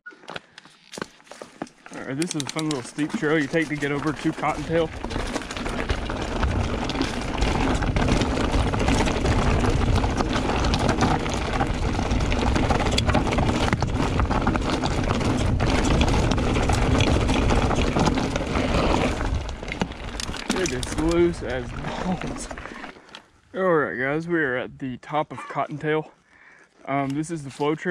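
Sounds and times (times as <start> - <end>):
bike knocks and rattles: 0.9 - 21.6
bike tyres skidding on dirt: 1.0 - 23.1
wind rush on microphone: 4.7 - 19.8.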